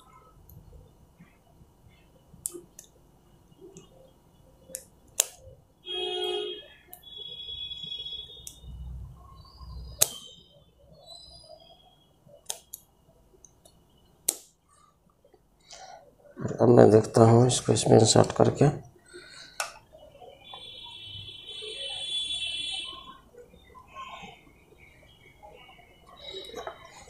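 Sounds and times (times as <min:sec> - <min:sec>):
wire cutter snipping: 0:04.7 - 0:05.4, 0:14.3 - 0:14.5.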